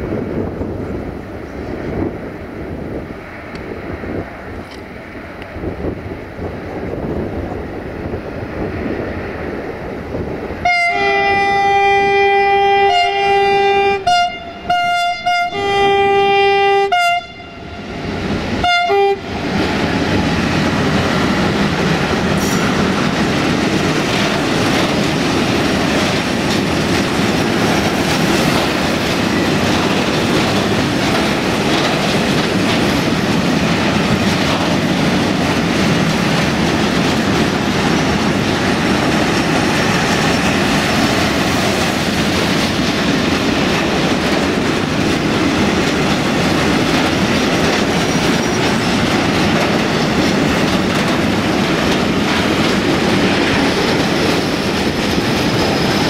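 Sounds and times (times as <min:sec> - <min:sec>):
freight train rumbling past: 0:00.0 - 0:56.0
steel wheels clattering on rails: 0:19.3 - 0:56.0.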